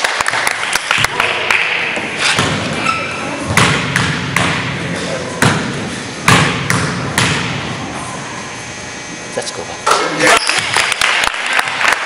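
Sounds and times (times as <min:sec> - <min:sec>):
gym background noise: 0:00.0 - 0:10.9
basketball bouncing on wood floor: 0:01.0 - 0:04.7, 0:05.4 - 0:07.6.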